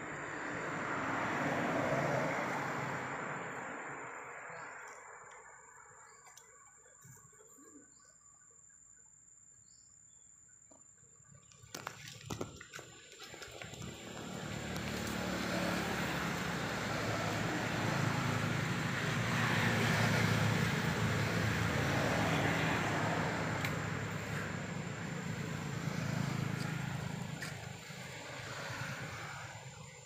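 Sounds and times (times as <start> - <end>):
vehicle passing by: 0.0 - 5.8, 13.2 - 30.0.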